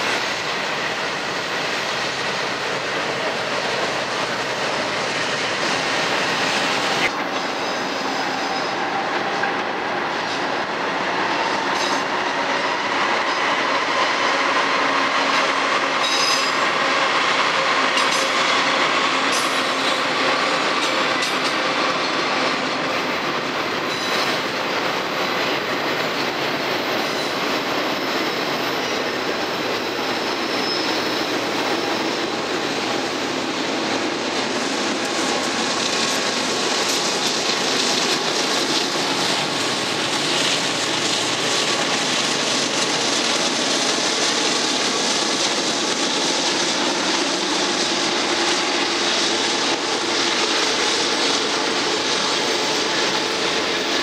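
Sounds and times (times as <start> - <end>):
steel wheels rolling on rail: 0.0 - 54.0
high wheel squeal: 15.3 - 20.6, 23.8 - 25.8, 26.6 - 32.7.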